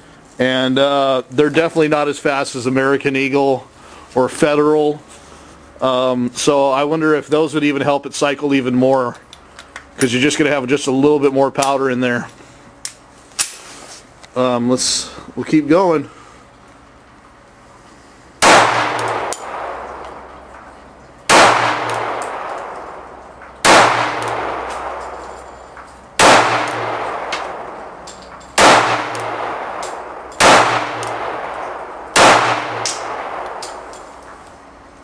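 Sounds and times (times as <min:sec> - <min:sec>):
pistol shots with echo: 0:18.4 - 0:20.4, 0:21.3 - 0:34.2.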